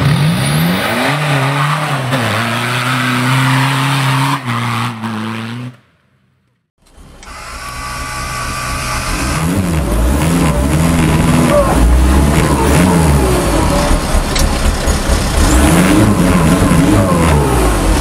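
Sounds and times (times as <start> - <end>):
engine at high revs: 7.3 - 18.0.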